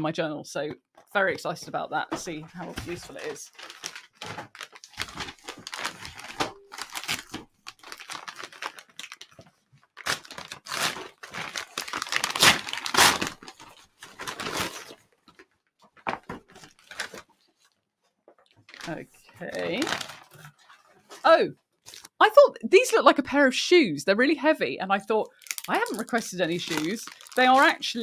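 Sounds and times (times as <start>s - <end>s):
paper bag crinkling and tearing: 2.8s - 15.0s, 18.7s - 20.9s, 25.3s - 28.0s.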